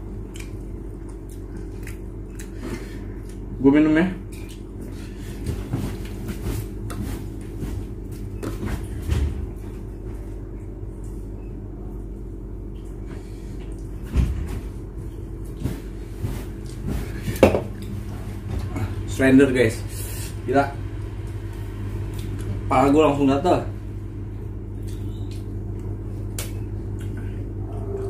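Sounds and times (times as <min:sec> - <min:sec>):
steady low hum: 0:00.0 - 0:28.0
drink can set on table: 0:17.4 - 0:17.7.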